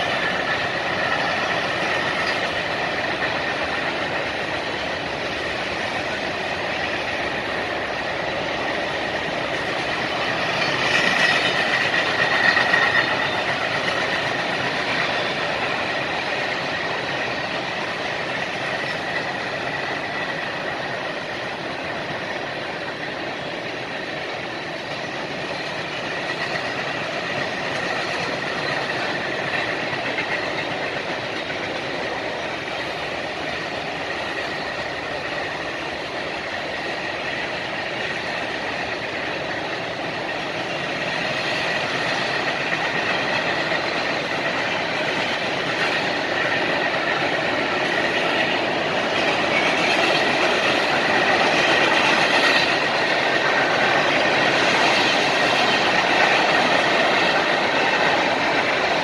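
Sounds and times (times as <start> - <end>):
freight train rumbling and rattling: 0.0 - 59.0.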